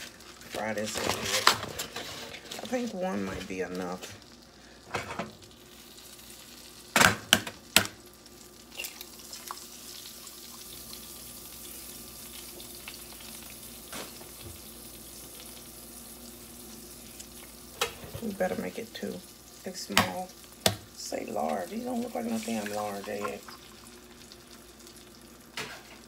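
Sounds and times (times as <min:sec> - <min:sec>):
pan sizzling faintly: 0:00.0 - 0:26.0
frying pan clanking on burner: 0:06.9 - 0:08.0.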